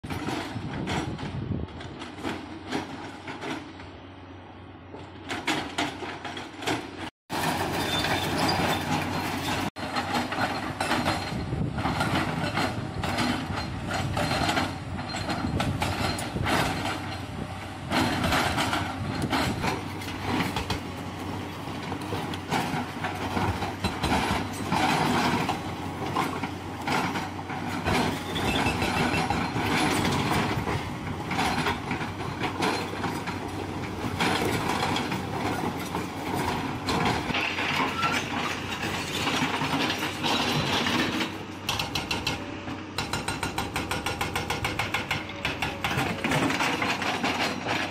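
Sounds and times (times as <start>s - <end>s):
hydraulic rock breaker hammering: 21.8s - 47.9s.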